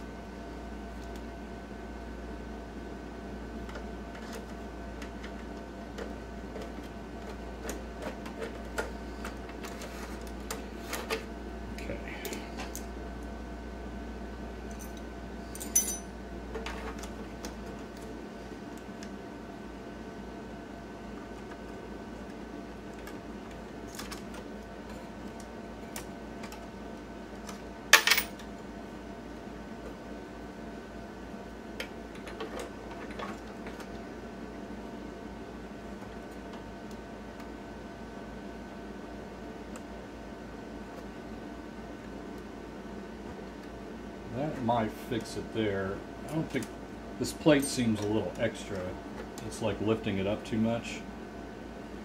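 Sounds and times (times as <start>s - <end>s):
steady low hum: 0.0s - 52.0s
coins clinking in metal bowl: 15.6s - 16.0s.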